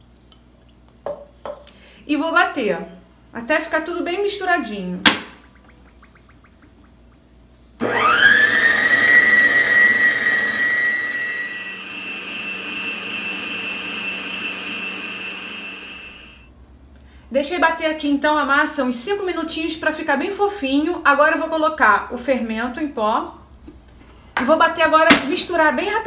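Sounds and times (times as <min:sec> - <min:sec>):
stand mixer motor whine: 0:07.8 - 0:16.4.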